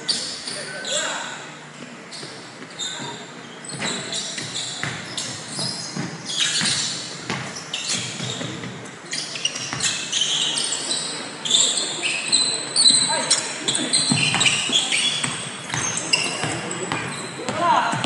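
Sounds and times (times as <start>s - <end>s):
sneakers squeaking on floor: 0.0s - 18.0s
basketball bouncing: 3.7s - 5.4s, 6.0s - 8.7s, 14.1s - 18.0s.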